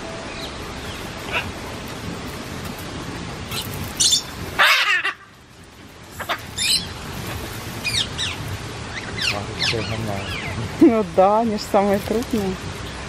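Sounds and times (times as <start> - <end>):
parrots squawking and screeching: 0.9 - 1.5, 3.5 - 5.4, 6.1 - 10.7.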